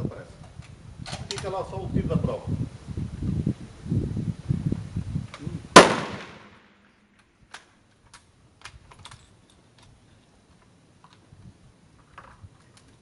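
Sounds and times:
rifle shot with echo: 0:05.7 - 0:06.8.

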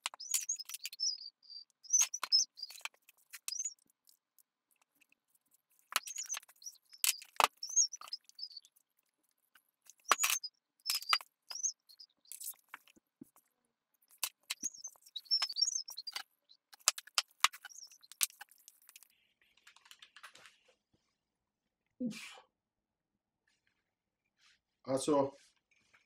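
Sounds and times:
marker squeaking on paper: 0:00.0 - 0:03.8, 0:05.8 - 0:08.7, 0:09.9 - 0:12.9, 0:14.1 - 0:19.2
paper rustling: 0:16.8 - 0:20.8.

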